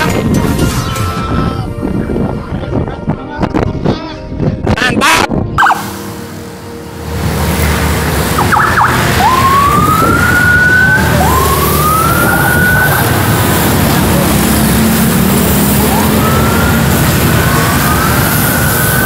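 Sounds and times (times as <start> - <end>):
siren rising whoops: 5.6 - 5.9, 8.3 - 13.4, 15.8 - 19.0
siren short chirps: 5.6 - 5.9
steady background noise: 5.7 - 19.0.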